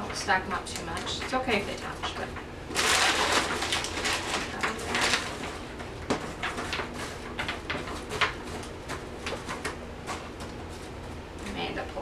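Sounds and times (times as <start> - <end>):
plastic bag crinkling: 1.0 - 9.5.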